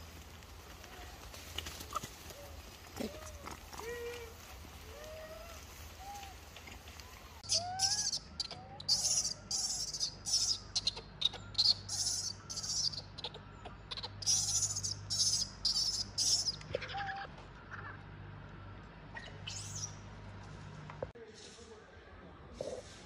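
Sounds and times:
high-pitched chirping: 7.4s - 16.7s
infant monkey squeaks: 7.4s - 17.3s.

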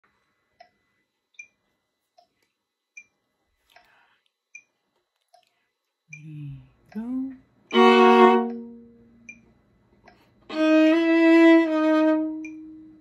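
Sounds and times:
metronome clicking: 6.9s - 10.2s, 12.1s - 13.0s.

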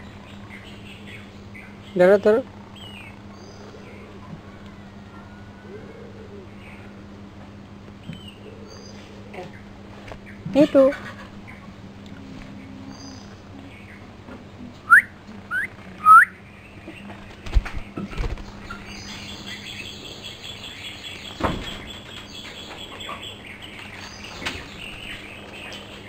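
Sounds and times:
high buzzy bird call: 14.9s - 16.5s
bird chirping: 14.9s - 17.0s.

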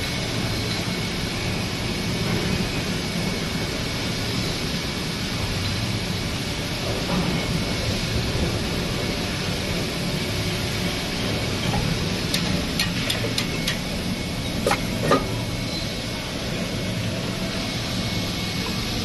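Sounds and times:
machine droning: 6.9s - 19.0s.

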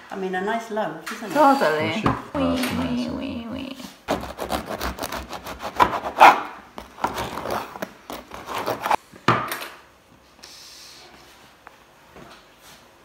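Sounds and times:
knife sawing through bread crust: 4.1s - 9.0s.

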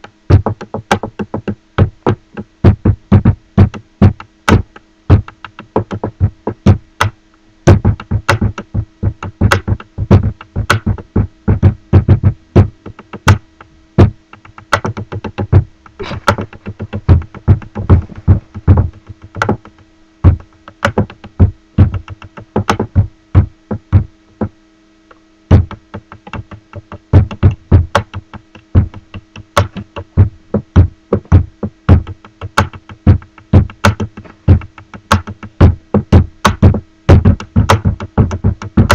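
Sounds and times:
pen drumming on wooden table: 25.5s - 38.9s.

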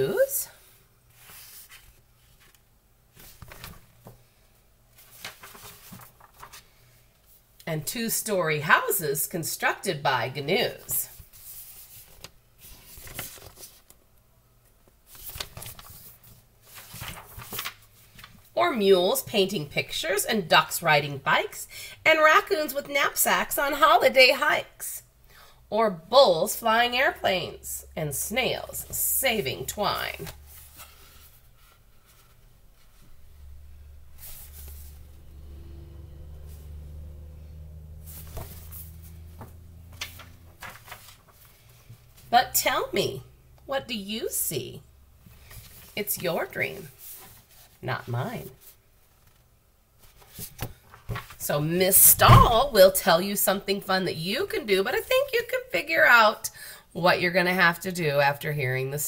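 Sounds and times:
low steady hum: 0.0s - 9.4s, 18.3s - 50.2s
paper pages rustling: 1.1s - 4.3s, 4.9s - 7.4s, 11.1s - 14.0s, 14.8s - 18.5s, 29.8s - 33.2s, 34.2s - 35.1s, 38.1s - 42.3s, 45.2s - 46.2s, 46.9s - 47.8s, 48.6s - 51.4s.

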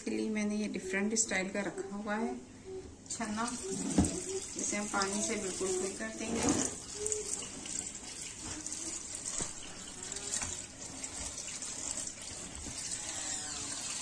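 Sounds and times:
tap water running into sink: 3.2s - 14.0s.

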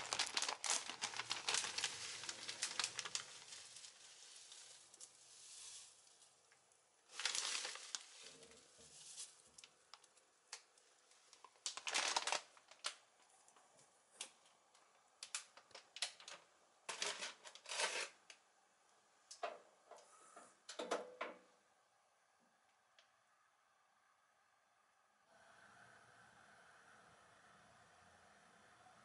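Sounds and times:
bag of flakes rustling: 0.0s - 10.1s, 11.4s - 13.0s.

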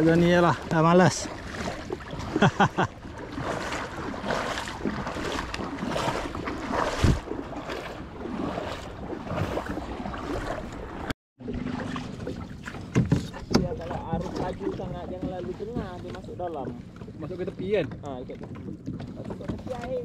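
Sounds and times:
paddle strokes splashing water: 0.0s - 20.0s
wind on microphone: 1.3s - 11.1s.

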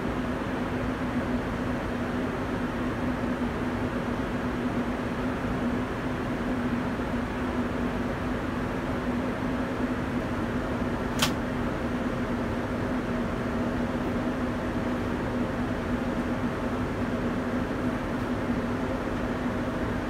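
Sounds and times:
airliner cabin engine and airflow noise: 0.0s - 20.0s
sharp click: 11.2s - 11.4s.

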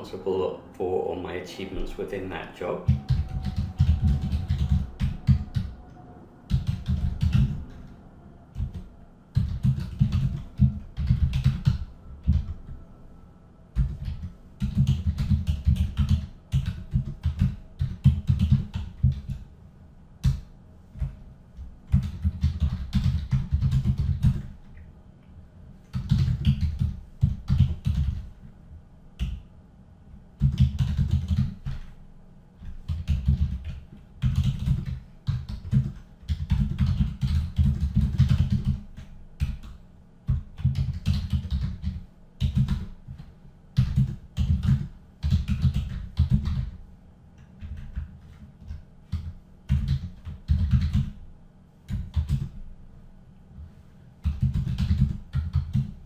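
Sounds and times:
typing on computer keyboard: 2.9s - 5.7s, 6.5s - 7.7s, 8.6s - 12.6s, 13.8s - 19.4s, 21.9s - 24.5s, 25.9s - 28.3s, 30.4s - 31.9s, 32.8s - 43.2s, 43.8s - 46.8s, 47.6s - 51.2s, 51.9s - 52.6s, 54.2s - 56.0s.

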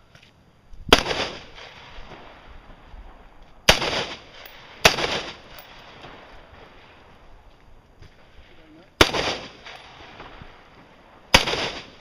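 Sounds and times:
rifle shots with echo: 0.9s - 2.5s, 3.7s - 6.9s, 9.0s - 12.0s.

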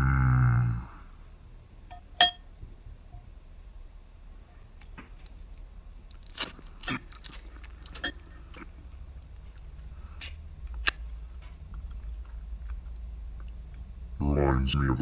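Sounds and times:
person chewing: 5.2s - 13.9s.

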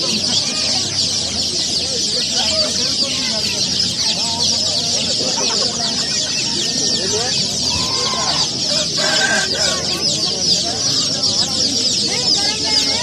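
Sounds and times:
quail and chicks chirping: 0.0s - 13.0s.

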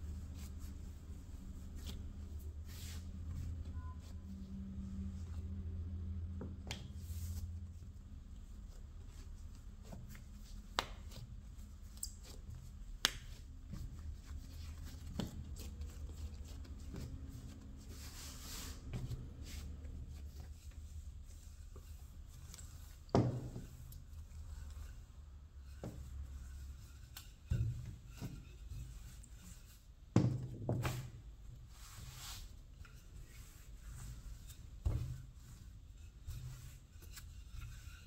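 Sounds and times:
rubbing rustle: 8.6s - 30.0s, 31.7s - 38.0s
hands handling dough on board: 8.7s - 25.0s, 25.6s - 38.0s.

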